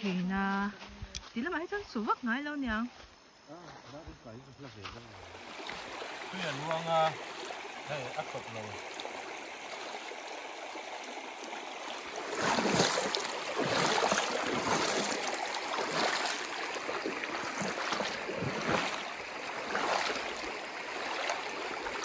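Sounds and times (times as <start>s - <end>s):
footsteps splashing through water: 3.0s - 22.0s
stream flowing over stones: 4.8s - 22.0s.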